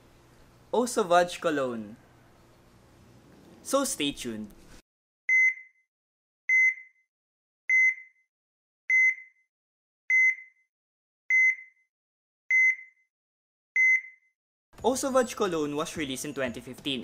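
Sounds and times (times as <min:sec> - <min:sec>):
electronic monitor beeps: 0:05.3 - 0:05.8, 0:06.5 - 0:07.0, 0:07.7 - 0:08.2, 0:08.9 - 0:09.4, 0:10.1 - 0:10.6, 0:11.3 - 0:11.8, 0:12.5 - 0:13.0, 0:13.8 - 0:14.3.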